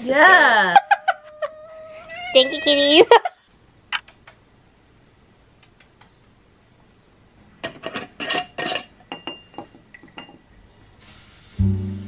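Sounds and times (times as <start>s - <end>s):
faint clicks: 5.6s - 6.2s
glass jar clinking on metal counter: 8.6s - 10.5s.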